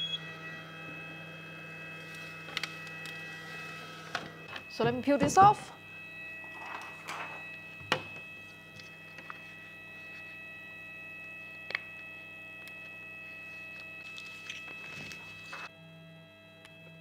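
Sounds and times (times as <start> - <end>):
electrical hum with high whine: 0.0 - 17.0
vinyl sheets rustling: 13.3 - 15.7.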